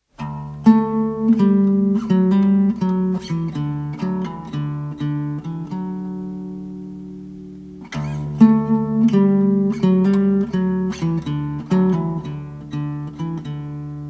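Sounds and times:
acoustic guitar picking: 0:00.2 - 0:14.0.

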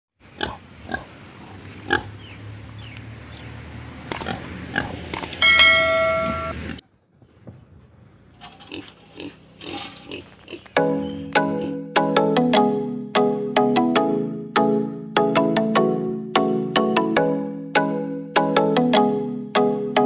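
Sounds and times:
pig grunting: 0:00.4 - 0:02.2
bell-like notification chime: 0:05.4 - 0:06.6.

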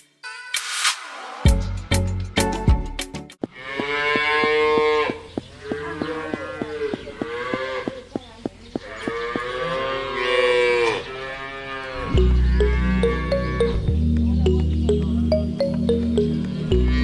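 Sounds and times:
cattle mooing: 0:03.5 - 0:07.9, 0:08.9 - 0:13.8, 0:16.7 - 0:17.0.

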